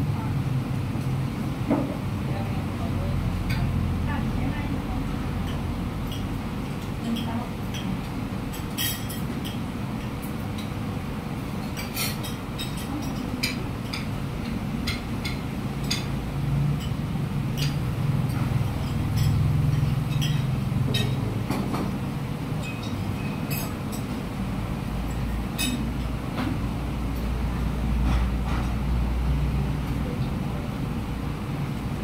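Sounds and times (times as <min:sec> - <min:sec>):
street traffic rumble: 0:00.0 - 0:32.0
cutlery clinking on plates: 0:08.5 - 0:09.6, 0:11.6 - 0:16.2, 0:17.6 - 0:21.9, 0:22.6 - 0:24.1, 0:25.1 - 0:26.5.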